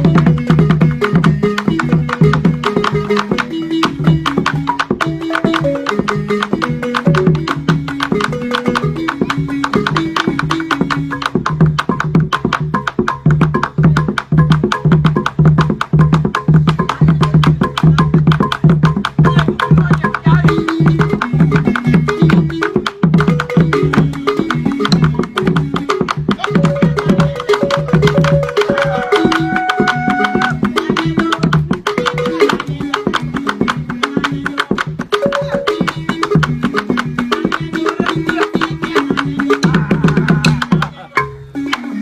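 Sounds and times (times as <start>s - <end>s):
barrel drum beating: 0.0s - 42.0s
wooden xylophone melody: 0.0s - 42.0s.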